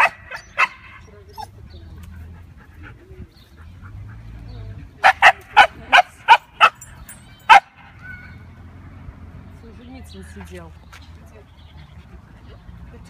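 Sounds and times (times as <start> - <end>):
dog barking: 0.0 - 1.0, 5.0 - 6.9, 7.5 - 8.4.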